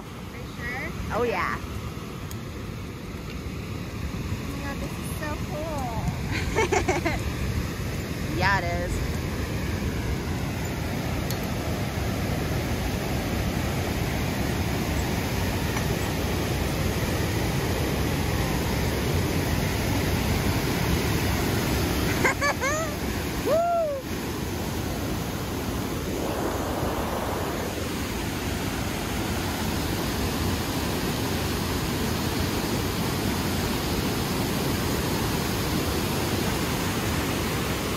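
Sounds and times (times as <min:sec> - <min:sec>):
person whooping: 0:22.6 - 0:24.1
torrent roaring over boulders: 0:25.8 - 0:28.6.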